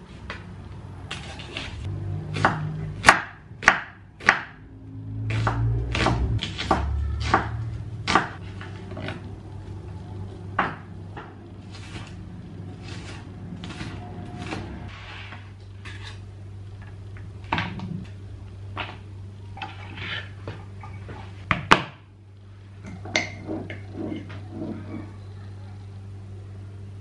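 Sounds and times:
knife chopping on cutting board: 2.3 - 4.6, 5.3 - 8.4.

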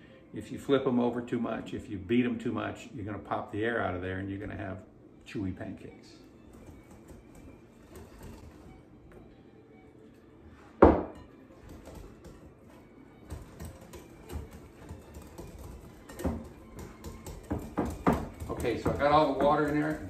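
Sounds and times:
whisk tapping glass bowl: 10.9 - 20.0.

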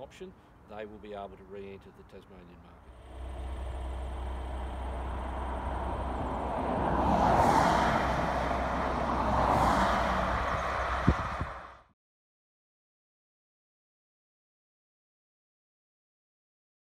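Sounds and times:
low steady traffic rumble: 0.0 - 11.9
vehicles passing on highway: 2.8 - 11.9.

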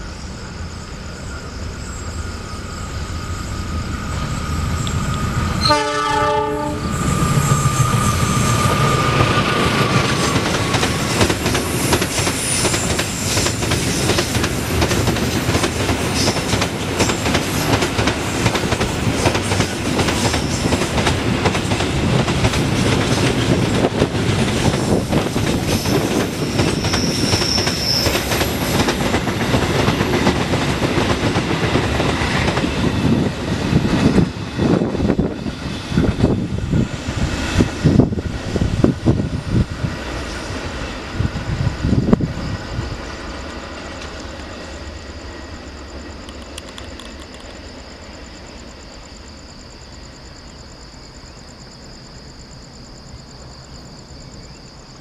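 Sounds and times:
locomotive passing: 1.1 - 47.6
train wheels clacking on rails: 4.8 - 41.5.

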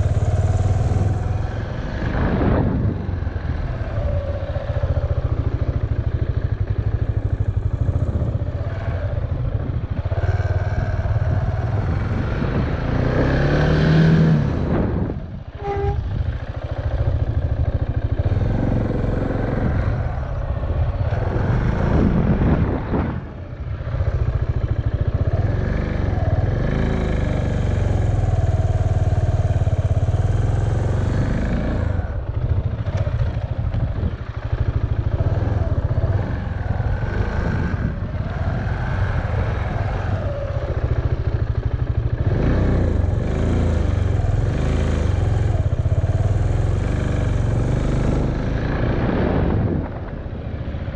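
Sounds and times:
motorcycle engine revving: 0.0 - 50.9
steady low rumble: 14.0 - 26.6.

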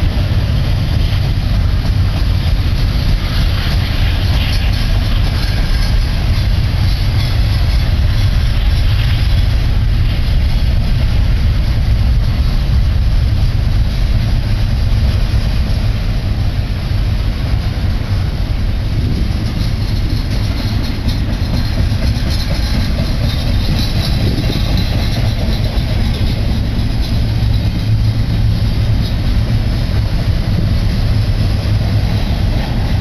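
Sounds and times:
train wheels rumbling on rails: 0.0 - 33.0.

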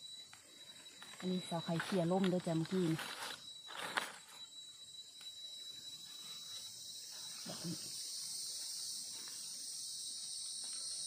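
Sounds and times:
insects buzzing: 0.0 - 11.0.

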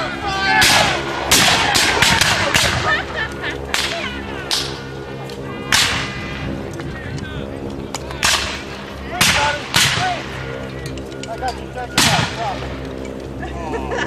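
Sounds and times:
musket shots with echo: 0.6 - 2.9, 5.7 - 6.2, 8.2 - 10.2, 12.0 - 12.7.

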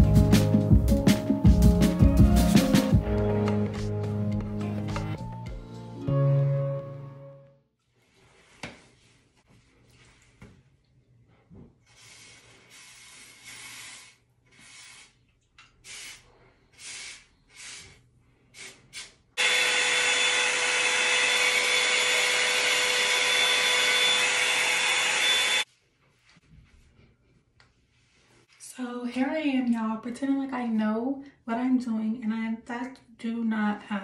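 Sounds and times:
short hissing bursts: 11.9 - 15.2, 15.8 - 19.2
hot air dryer brush running: 19.4 - 25.7.

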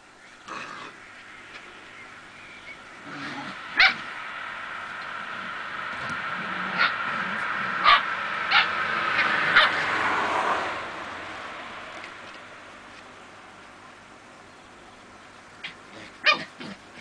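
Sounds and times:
puppies yipping: 3.8 - 4.1, 6.7 - 7.0, 7.8 - 9.8.

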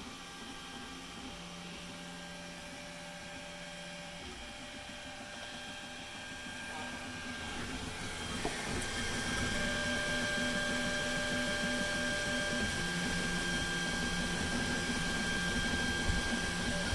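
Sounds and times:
stepper motors whining: 6.4 - 16.9.

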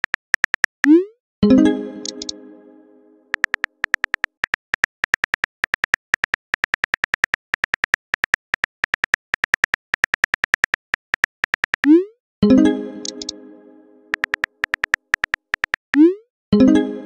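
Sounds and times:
keyboard typing ticks: 0.0 - 1.1, 2.0 - 2.4, 3.3 - 12.1, 13.0 - 13.4, 14.1 - 16.2.

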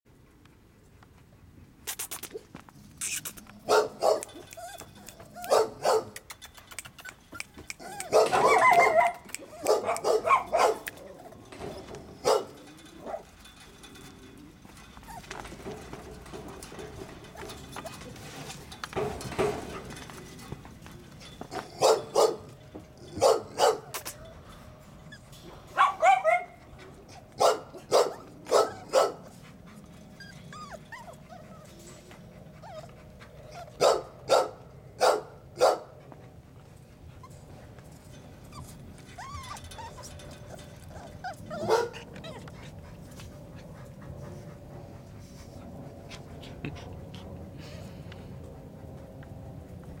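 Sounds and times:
dogs barking: 3.7 - 4.5, 5.4 - 6.2, 7.8 - 11.0, 12.2 - 13.3, 21.6 - 24.0, 25.7 - 26.6, 27.4 - 29.3, 33.7 - 36.0, 41.5 - 42.1
dog whimpering: 4.4 - 5.5, 6.5 - 9.7, 30.1 - 31.8, 32.6 - 33.8, 38.5 - 42.8.

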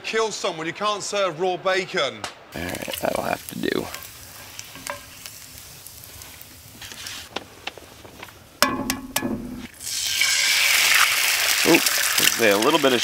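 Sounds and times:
egg sizzling in grease: 2.6 - 13.0
egg knocking on a skillet: 3.9 - 5.3, 8.6 - 9.7.

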